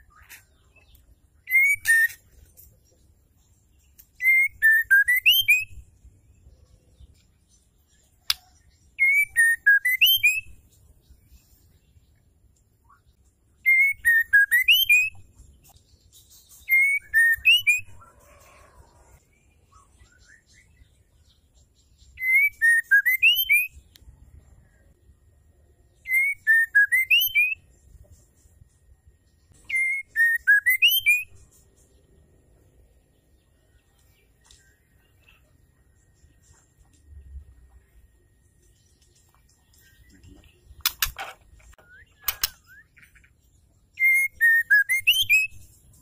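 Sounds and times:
bird whistled call: 1.4 - 2.2, 22.2 - 23.8, 26.0 - 27.6, 29.7 - 31.4, 44.0 - 45.6.

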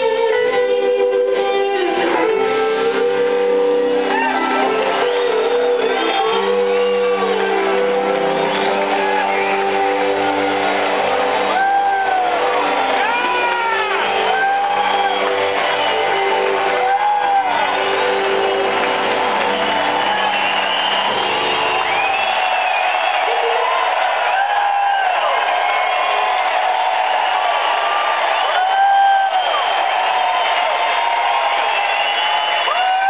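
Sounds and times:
rock band playing: 0.0 - 24.9
audience whooping: 2.9 - 33.0.

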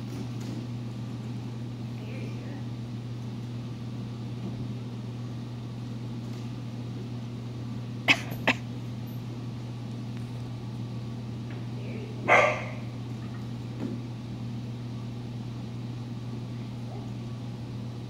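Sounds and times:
steady low hum: 0.0 - 18.0
puppy barking: 12.2 - 12.9.

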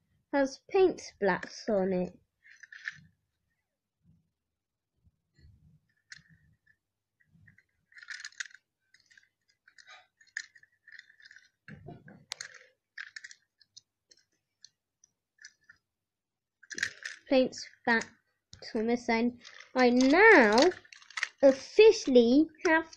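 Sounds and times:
toy train clicks and clinks: 2.4 - 3.0, 7.5 - 11.6, 12.3 - 14.7, 16.6 - 18.2, 19.0 - 22.9.

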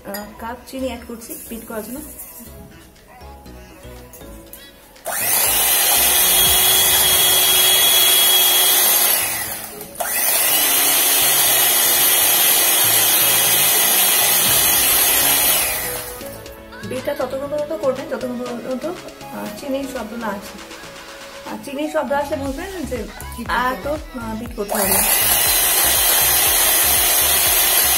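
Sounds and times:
electric hand mixer in glass bowl: 5.1 - 16.4, 24.6 - 27.9.

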